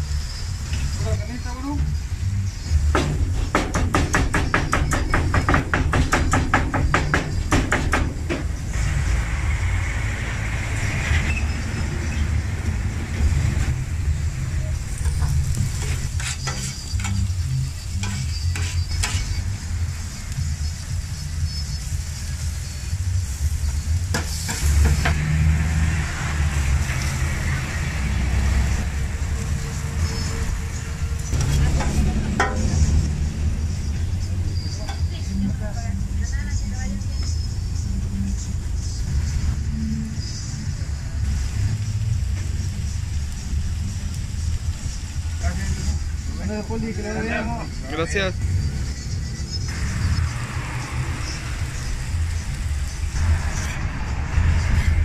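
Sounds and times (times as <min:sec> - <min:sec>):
meat sizzling on griddle: 0:00.0 - 0:55.0
low rumble: 0:49.6 - 0:55.0.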